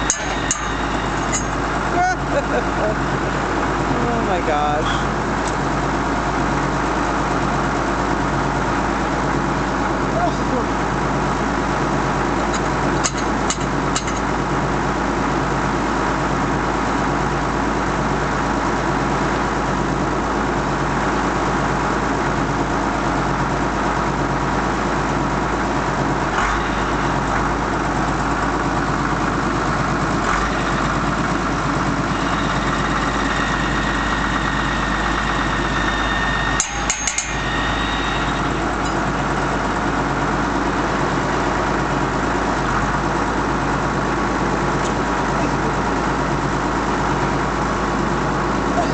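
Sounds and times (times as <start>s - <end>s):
metal tools clinking: 0.0s - 1.6s
sharp metallic cracks: 0.0s - 1.8s, 36.5s - 39.1s
engine idling: 0.0s - 48.9s.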